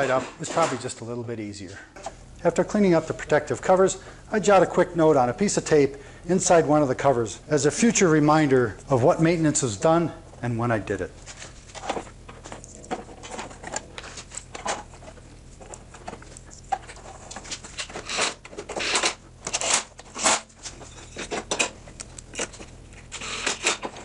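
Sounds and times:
metal parts clicking and scraping: 11.3 - 24.0.

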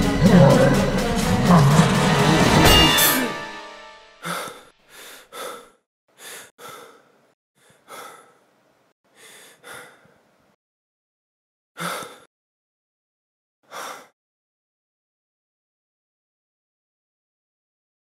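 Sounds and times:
man breathing hard: 4.2 - 8.5, 9.1 - 10.3, 11.8 - 12.3, 13.7 - 14.2.

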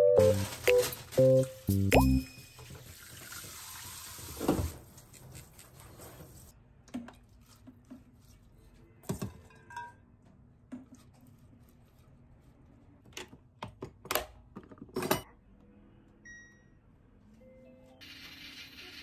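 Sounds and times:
tap water running into sink: 2.6 - 4.7.

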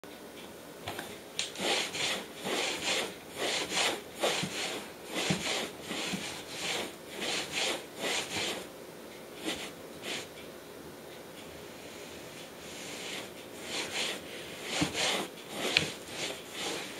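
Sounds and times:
cloth scrubbing wooden floor: 1.6 - 8.7, 9.4 - 10.3, 12.6 - 16.9.

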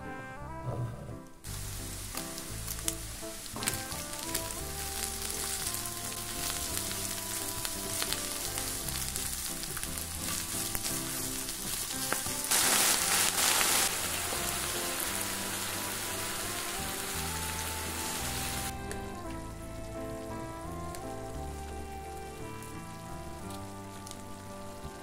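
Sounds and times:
soft background music: 0.0 - 25.0
food sizzling in a frying pan: 1.5 - 18.8.

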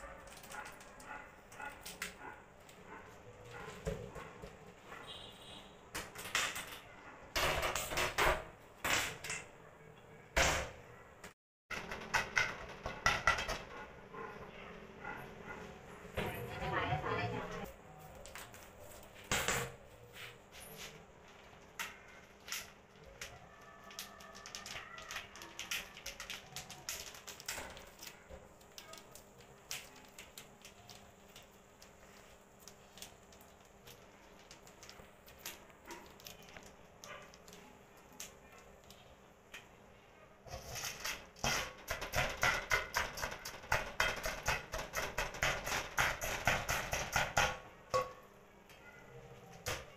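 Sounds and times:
hands clicking and clinking in pot: 0.0 - 4.6, 20.7 - 39.8, 40.5 - 48.3.

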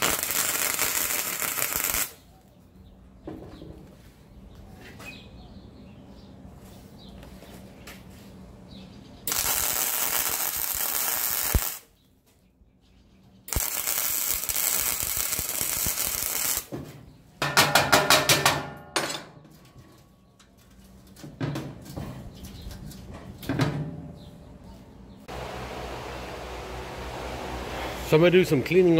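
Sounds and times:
electric arc welding: 0.0 - 2.2, 9.3 - 11.9, 13.5 - 16.7.

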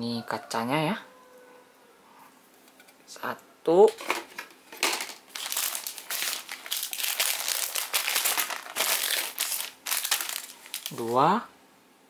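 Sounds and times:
plastic bags crinkling: 3.9 - 11.2.

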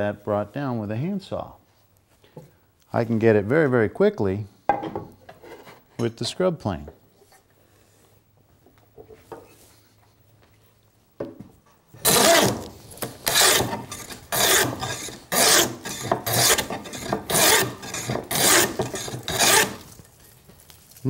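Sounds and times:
hand plane rasping strokes: 12.0 - 19.9.

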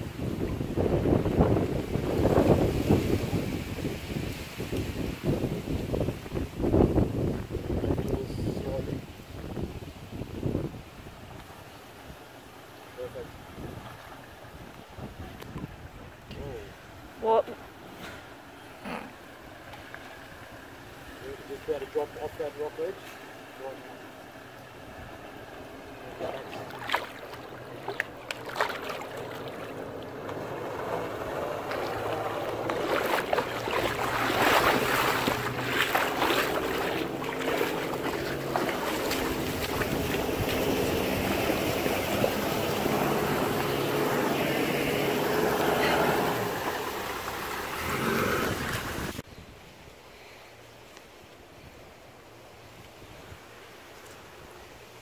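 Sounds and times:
vehicle engine under load: 29.0 - 49.2.

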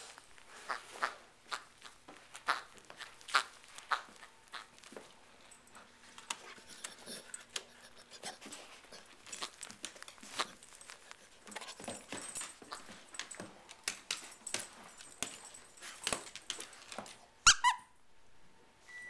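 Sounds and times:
squeaky toy squeaking: 17.4 - 17.9.

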